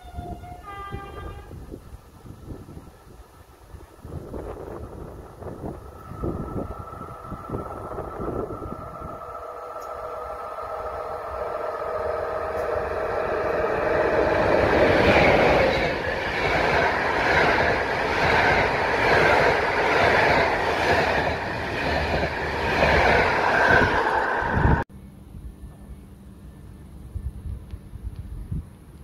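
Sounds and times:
passenger train passing: 0.0s - 24.9s.

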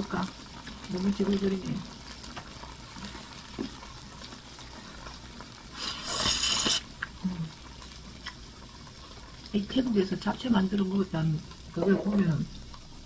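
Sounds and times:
meat sizzling on a grill: 0.0s - 13.0s
loud slurp of noodles: 5.8s - 6.8s.

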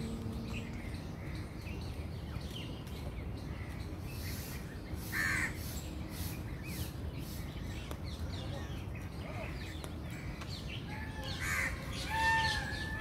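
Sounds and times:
steady low rumble: 0.0s - 4.7s.

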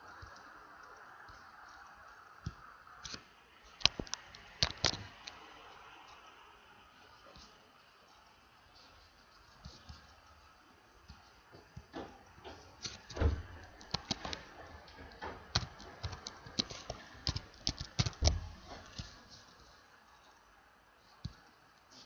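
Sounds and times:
keyboard typing: 12.8s - 14.6s, 15.2s - 19.1s.

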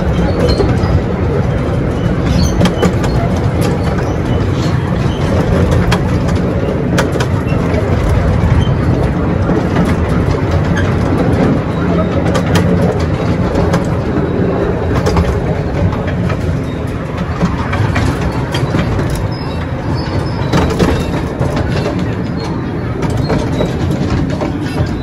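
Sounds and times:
train rumbling on track: 0.0s - 25.0s
wheels clicking on rails: 0.0s - 25.0s.

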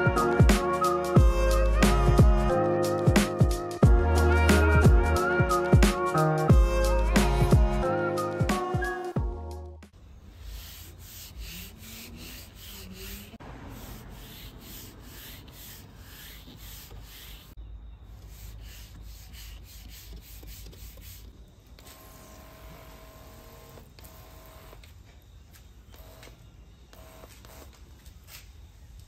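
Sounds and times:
fingertips rubbing car paint: 10.3s - 17.6s, 18.2s - 22.0s.

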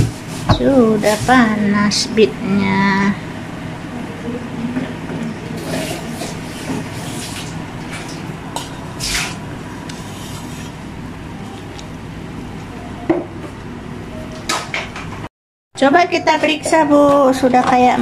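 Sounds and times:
steady low hum: 0.0s - 15.3s
metal mug scraping and knocking: 9.9s - 10.9s.

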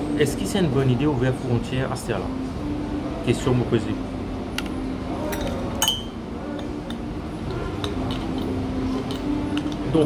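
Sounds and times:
spoon clinking against cup: 5.3s - 7.0s.

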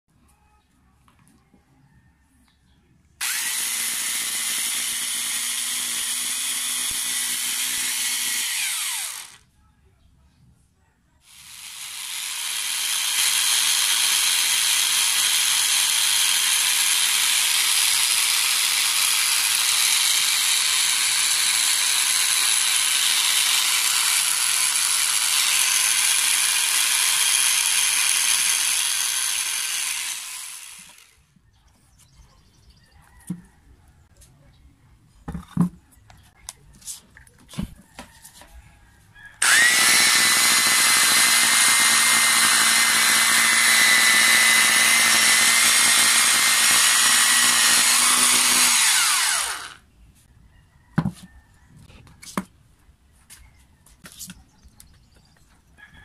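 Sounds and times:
angle grinder motor running: 3.2s - 9.4s, 11.3s - 31.2s, 39.4s - 49.8s.

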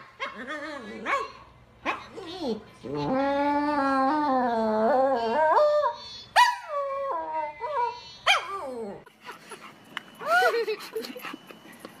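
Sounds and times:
dog howling and whining: 2.8s - 9.1s.

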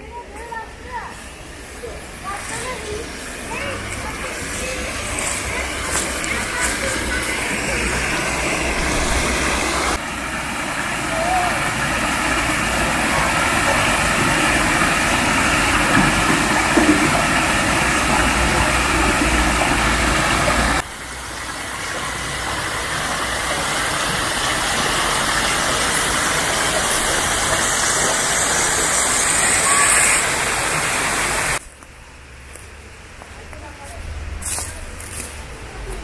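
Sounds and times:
quieter rushing noise: 1.2s - 20.8s
stream splashing over rocks: 3.4s - 31.6s.

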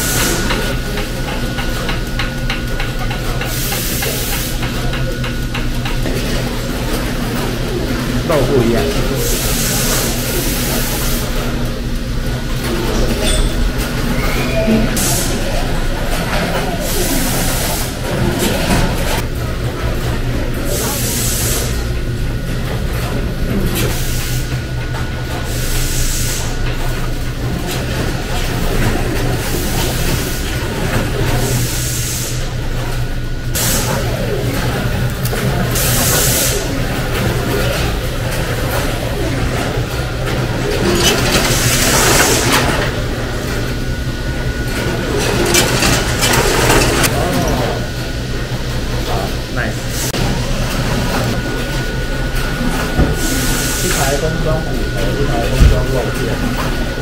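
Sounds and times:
machinery humming: 0.0s - 57.0s.

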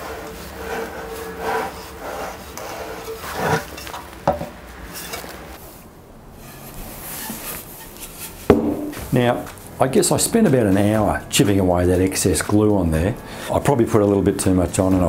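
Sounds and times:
clay pot scraping on wood: 0.0s - 5.7s, 6.4s - 9.5s.

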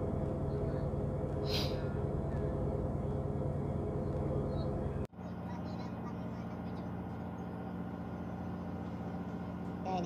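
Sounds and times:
boat engines droning: 0.0s - 10.0s
short hiss: 1.5s - 1.8s.

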